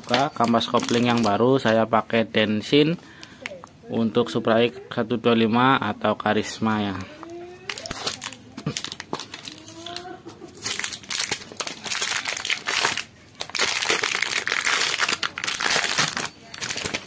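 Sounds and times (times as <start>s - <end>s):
plastic and cardboard packaging crinkling: 0.0s - 1.9s, 7.2s - 17.0s.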